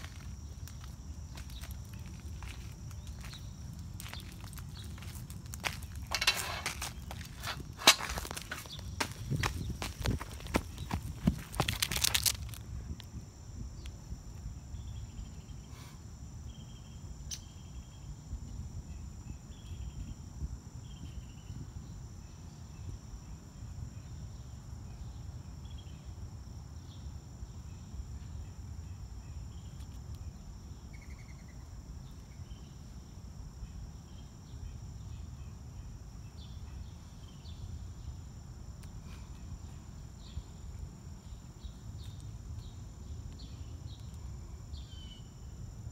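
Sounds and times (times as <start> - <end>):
high-pitched insect trilling: 0.0 - 15.7.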